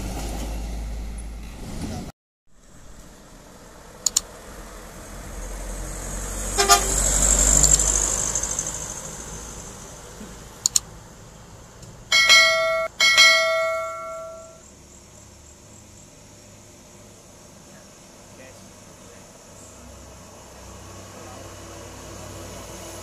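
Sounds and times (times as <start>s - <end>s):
truck passing by: 0.0s - 23.0s
short clicks: 4.0s - 4.3s, 10.6s - 10.9s
truck horn blasts: 6.5s - 7.4s.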